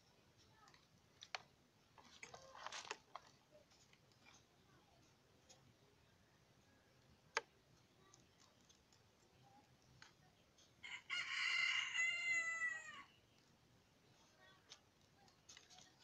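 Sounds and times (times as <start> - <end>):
rooster crowing: 10.8 - 13.1.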